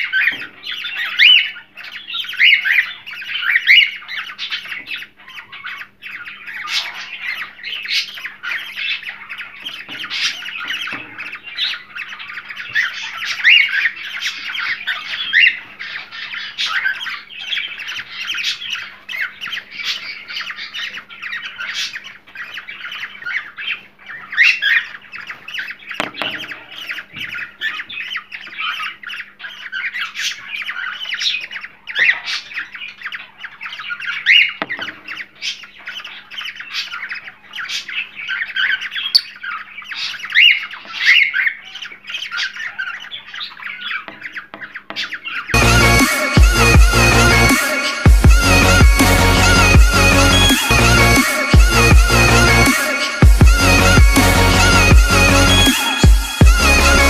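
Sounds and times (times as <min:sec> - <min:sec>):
cockatiels chattering and squawking: 0:00.0 - 0:57.0.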